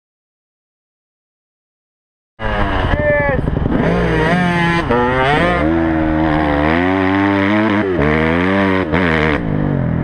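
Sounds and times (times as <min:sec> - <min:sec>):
motorcycle engine under hard throttle: 0:02.4 - 0:10.0.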